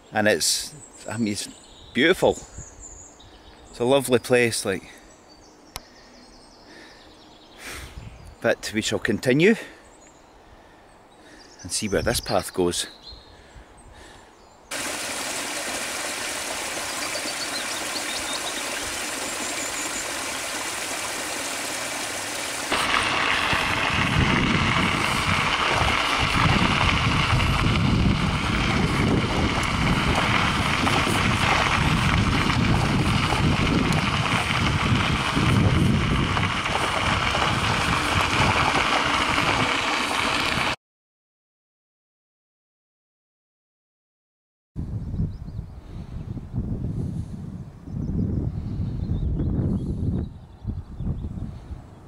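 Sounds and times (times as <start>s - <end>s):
bicycle tyres on gravel: 14.7s - 40.8s
wind on microphone: 22.7s - 40.8s, 44.8s - 52.0s.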